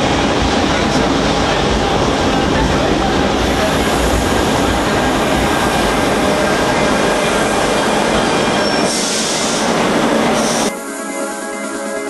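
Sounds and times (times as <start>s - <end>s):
train rumble and rail noise: 0.0s - 12.0s
high wheel squeal: 6.4s - 10.7s.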